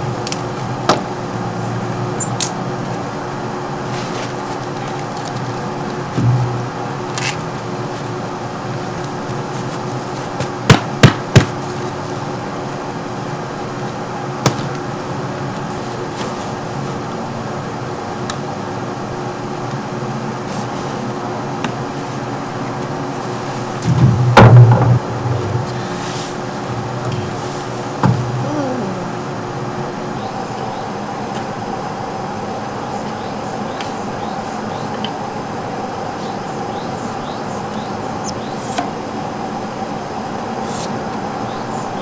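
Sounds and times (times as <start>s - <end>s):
steady hum: 0.0s - 42.0s.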